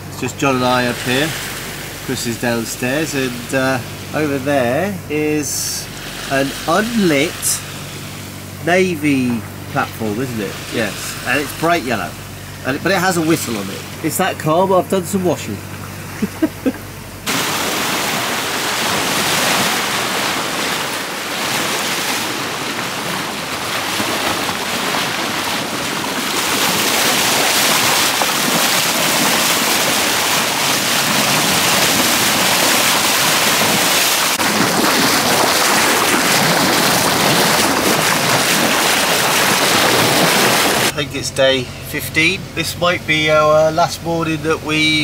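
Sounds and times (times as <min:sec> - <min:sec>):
water splashing along a hull: 0:00.0 - 0:45.0.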